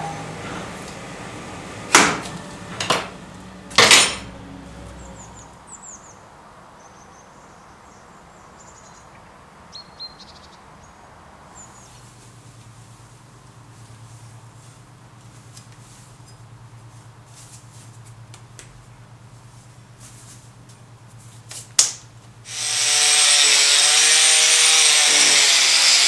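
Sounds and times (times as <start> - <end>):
loud metal clanks: 1.9 - 4.4.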